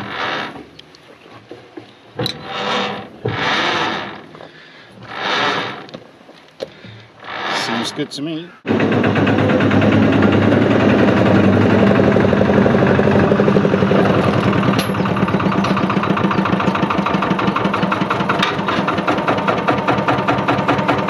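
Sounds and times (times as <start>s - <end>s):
dumper engine chugging: 8.6s - 21.0s.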